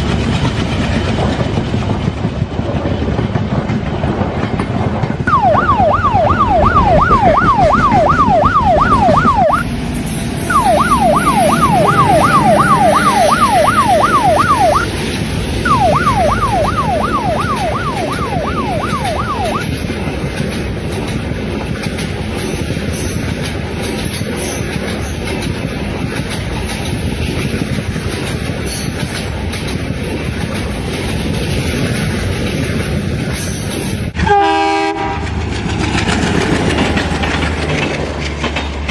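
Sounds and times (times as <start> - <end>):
train rumbling and clattering: 0.0 - 38.9
ambulance siren wailing: 5.3 - 9.7, 10.5 - 14.9, 15.6 - 19.8
train horn: 34.2 - 35.4.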